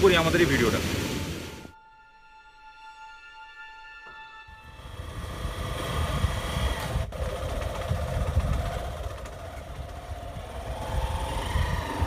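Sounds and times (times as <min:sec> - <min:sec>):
wind buffeting microphone: 0:04.8 - 0:12.0.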